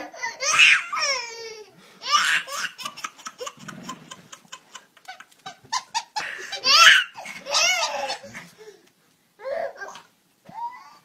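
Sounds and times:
baby laughing: 0:00.0 - 0:08.5.

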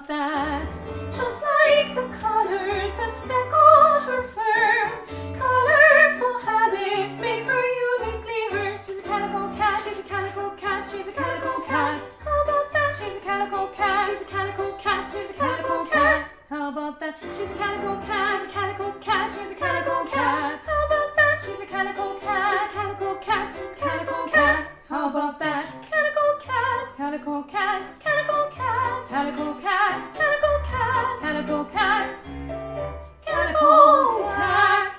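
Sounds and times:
women singing in harmony: 0:00.0 - 0:32.2, 0:33.2 - 0:34.9.

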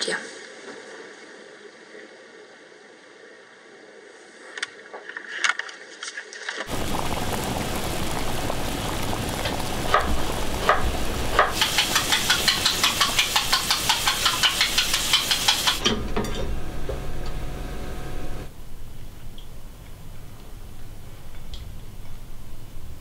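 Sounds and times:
food sizzling in frying: 0:06.7 - 0:15.9.

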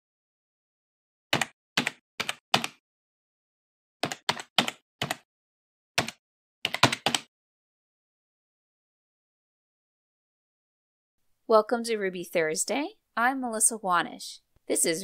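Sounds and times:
computer keyboard typing: 0:01.4 - 0:02.8, 0:04.0 - 0:05.2, 0:06.0 - 0:07.3.

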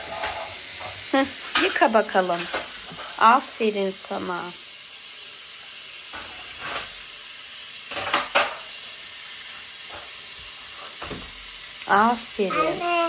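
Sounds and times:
tap water running into sink: 0:05.5 - 0:13.0.

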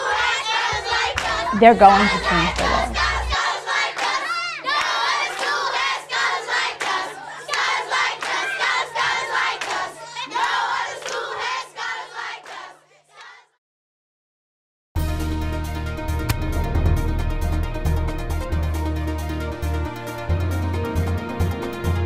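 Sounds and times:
children chanting and shouting: 0:00.0 - 0:13.6.

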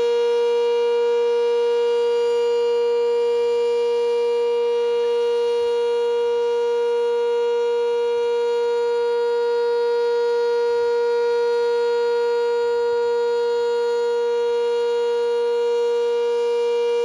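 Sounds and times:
warning siren steady tone: 0:00.0 - 0:17.0.

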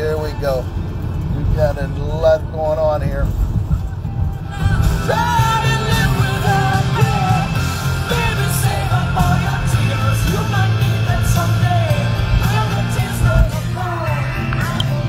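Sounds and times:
rock song with singing: 0:03.8 - 0:15.0.

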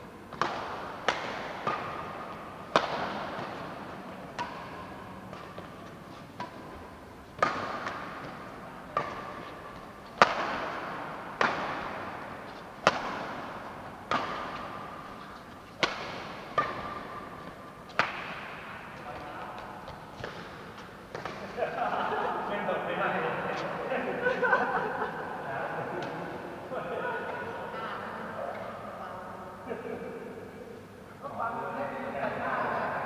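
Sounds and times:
racquets striking shuttlecock: 0:00.3 - 0:21.7.

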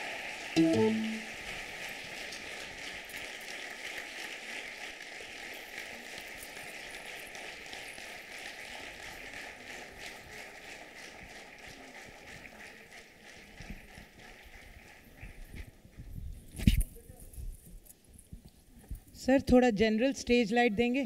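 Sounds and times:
audience applauding: 0:00.0 - 0:15.5.

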